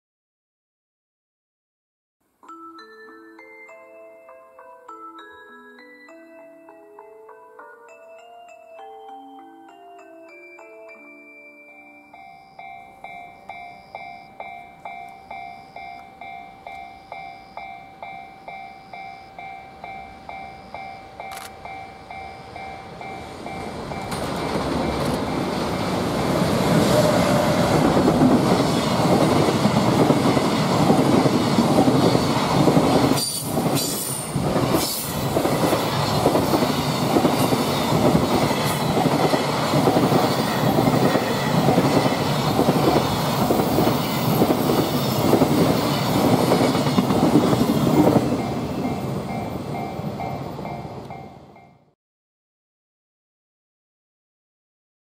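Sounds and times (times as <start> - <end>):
level-crossing alarm bell: 2.5 - 51.9
freight train passing: 11.8 - 51.8
wheels clacking over rail joints: 23.0 - 48.5.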